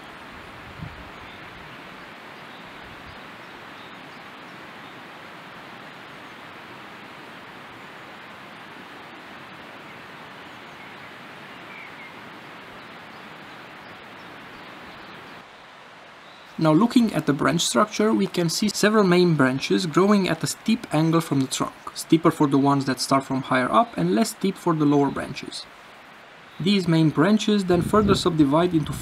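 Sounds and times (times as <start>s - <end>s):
mountain river rushing: 0.0s - 29.0s.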